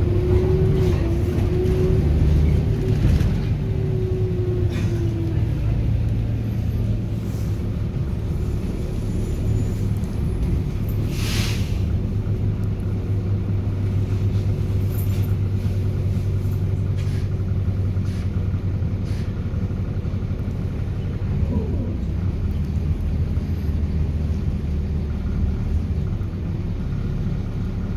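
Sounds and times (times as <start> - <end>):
bus diesel engine idling: 0.0 - 27.9
engine cooling fan drone: 11.2 - 27.9.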